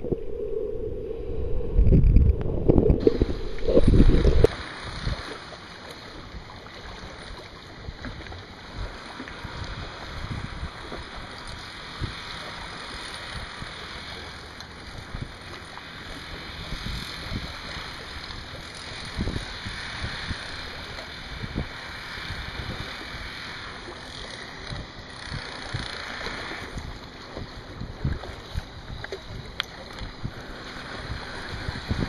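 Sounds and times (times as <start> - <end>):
wind gusting across microphone: 0.0 - 5.3, 30.1 - 32.0
seawater washing: 2.7 - 32.0.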